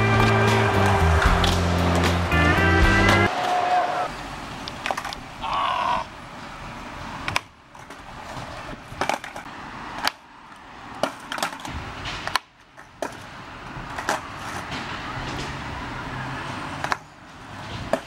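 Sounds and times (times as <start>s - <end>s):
skateboard wheels rolling on asphalt: 0.0s - 5.4s, 6.0s - 18.0s
skateboard deck clacking on ground: 7.2s - 10.2s, 11.0s - 14.9s, 17.8s - 18.0s.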